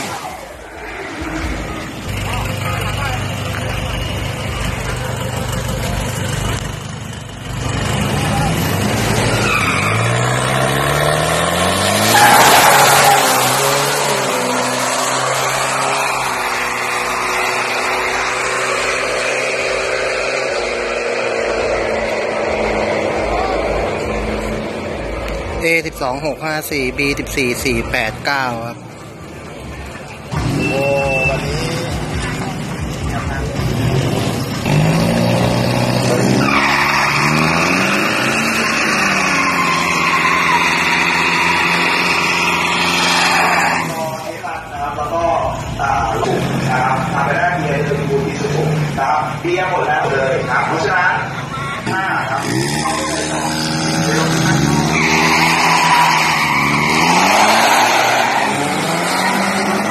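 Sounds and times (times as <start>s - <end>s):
loud tyre squeal: 0.0s - 6.4s, 7.4s - 25.1s, 30.3s - 32.0s, 33.8s - 49.4s, 50.0s - 59.9s
engine revving: 0.0s - 25.6s, 30.3s - 59.9s
diesel engine running: 0.0s - 26.0s.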